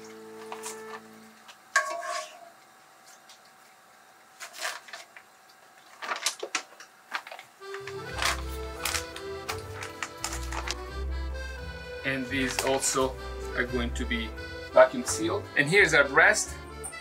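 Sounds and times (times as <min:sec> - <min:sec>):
plastic bag crinkling: 0:05.9 - 0:10.9.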